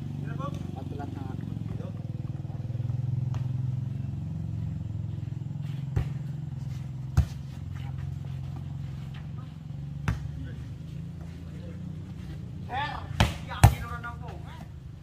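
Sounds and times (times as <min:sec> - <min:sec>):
volleyball struck by hand: 0:03.2 - 0:03.6, 0:05.9 - 0:06.4, 0:10.0 - 0:10.4, 0:13.1 - 0:14.0.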